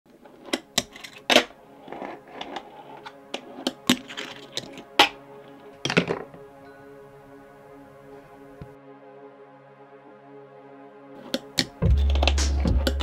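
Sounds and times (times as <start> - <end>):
wheels rolling on concrete: 0.2 - 5.1.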